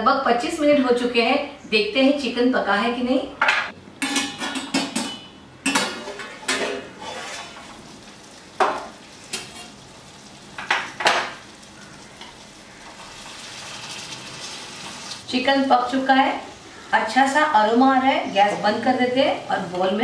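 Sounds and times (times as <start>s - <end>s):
steel lid clanking: 4.0s - 7.8s
curry sizzling in pan: 7.0s - 20.0s.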